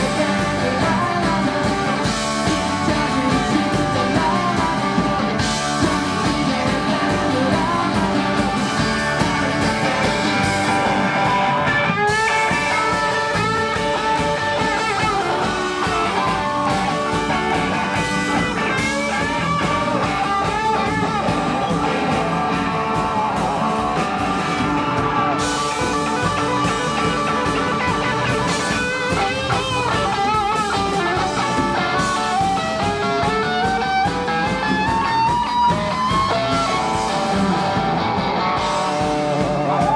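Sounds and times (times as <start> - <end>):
person singing or shouting: 0.0 - 8.9, 39.3 - 39.9
live rock band playing: 0.0 - 39.9.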